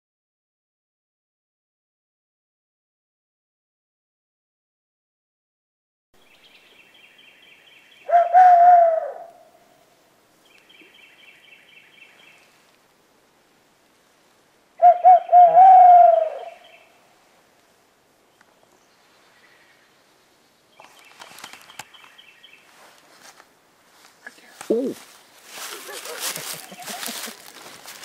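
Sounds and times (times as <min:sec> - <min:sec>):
person hooting like an owl: 0:08.1 - 0:09.5, 0:14.8 - 0:16.6.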